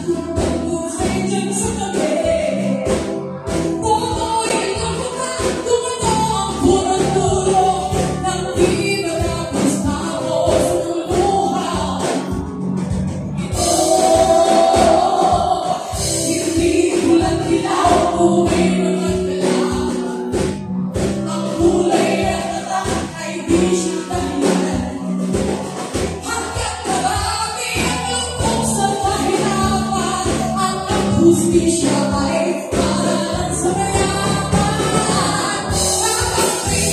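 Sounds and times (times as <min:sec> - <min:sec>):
drum kit beat: 0:00.0 - 0:36.9
woman singing lead: 0:00.0 - 0:36.9.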